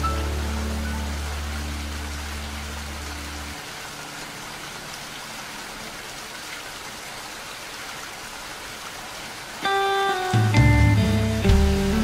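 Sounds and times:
low background music: 0:00.0 - 0:06.2, 0:09.6 - 0:12.0
steady rain falling: 0:00.0 - 0:12.0.

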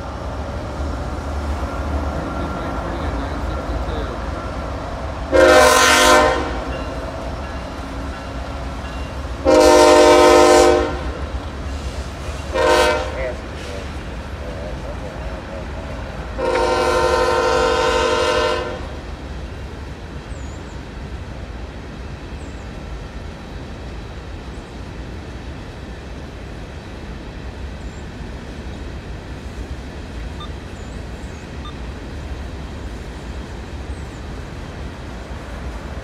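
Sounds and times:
train cars rumbling past: 0:00.0 - 0:36.0
locomotive horn blast: 0:05.3 - 0:07.0, 0:09.4 - 0:11.4, 0:12.4 - 0:13.9, 0:16.4 - 0:19.0.

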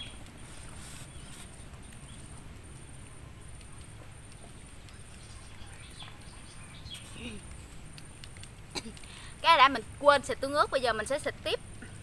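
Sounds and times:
faint clicks: 0:07.4 - 0:09.2.

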